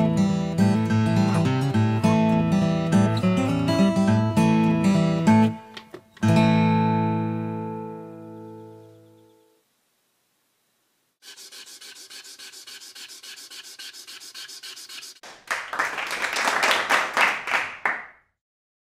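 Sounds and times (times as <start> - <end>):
marker scribbling on paper: 11.2 - 15.2.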